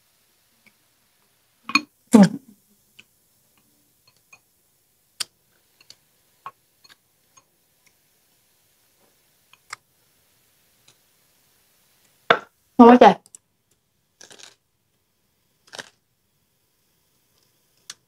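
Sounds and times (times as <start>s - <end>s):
loud bite and chew: 14.2s - 14.6s, 15.7s - 16.0s.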